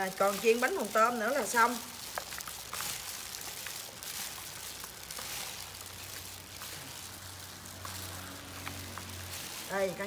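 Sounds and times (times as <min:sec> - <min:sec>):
salad tossed in plastic basin: 0:00.0 - 0:10.0
heavy rain: 0:05.0 - 0:10.0.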